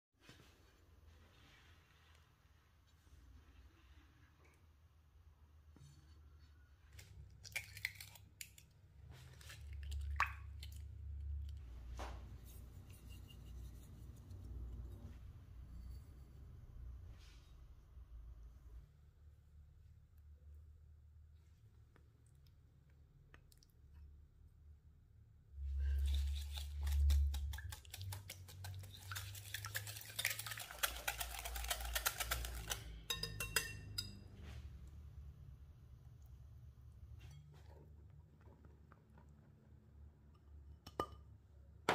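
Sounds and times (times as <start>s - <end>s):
utensil clicking in mixing bowl: 26.8s - 33.8s.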